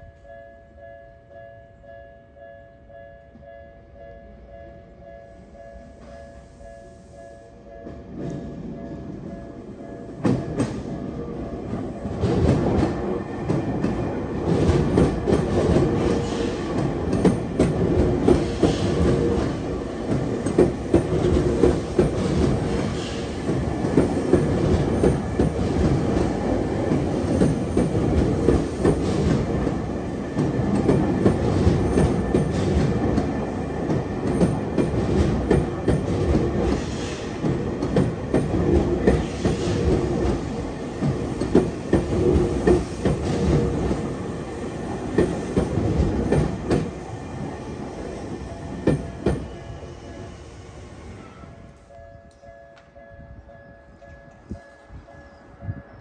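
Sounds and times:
train wheels clattering over rails: 0:10.0 - 0:49.8
train wheel squeal: 0:48.0 - 0:52.5.

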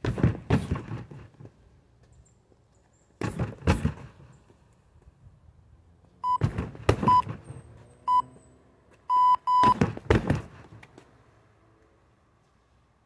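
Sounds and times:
kicks on heavy bag: 0:00.0 - 0:01.2, 0:03.2 - 0:04.1, 0:06.4 - 0:07.4, 0:09.6 - 0:10.6
electronic timer beeps: 0:06.2 - 0:06.4, 0:08.1 - 0:08.3, 0:09.1 - 0:09.8.

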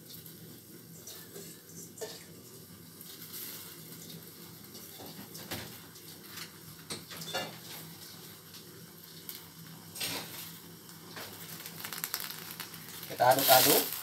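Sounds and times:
pot of water boiling: 0:00.0 - 0:14.0
pops and crackles: 0:09.2 - 0:14.0.

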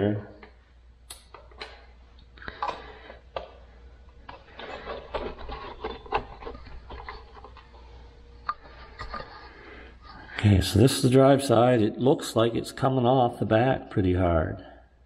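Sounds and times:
metal parts clicking and knocking: 0:04.2 - 0:07.6.

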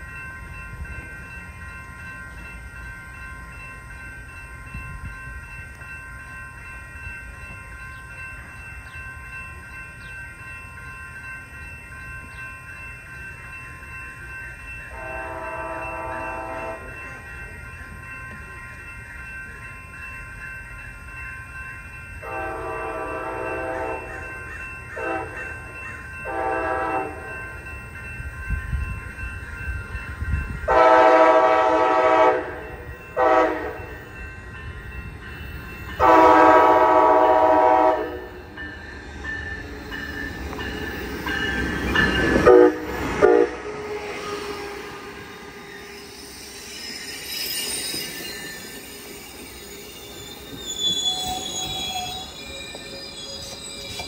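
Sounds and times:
locomotive horn blasts: 0:15.0 - 0:16.9, 0:22.2 - 0:24.2, 0:25.0 - 0:25.4, 0:26.3 - 0:27.3, 0:30.7 - 0:32.6, 0:33.2 - 0:33.9, 0:36.0 - 0:38.4, 0:42.4 - 0:45.0
wheels and brakes squealing: 0:43.9 - 0:54.0.

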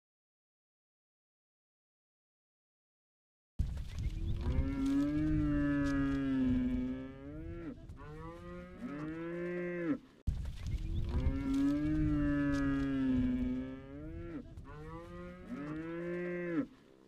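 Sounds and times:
cattle mooing: 0:04.3 - 0:10.1, 0:11.0 - 0:16.8.

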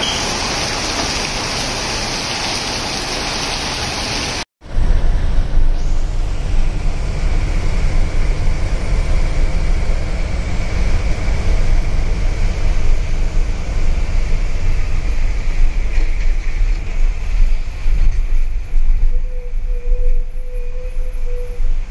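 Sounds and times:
tyres hissing on wet road: 0:00.0 - 0:04.5
bus engine and road rumble: 0:04.6 - 0:21.9.

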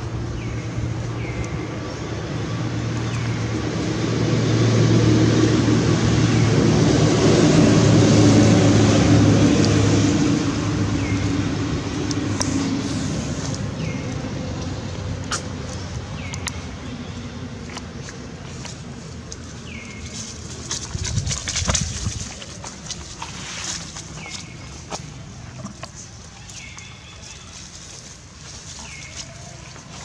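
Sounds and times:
vehicle passing by: 0:00.0 - 0:30.0
faint chirps and clicks: 0:15.3 - 0:20.1.

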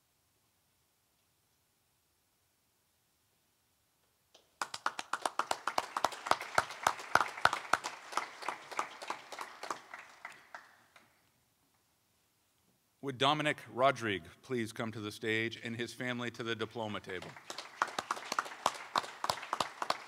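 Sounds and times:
small group clapping: 0:04.4 - 0:11.3, 0:17.0 - 0:20.0.

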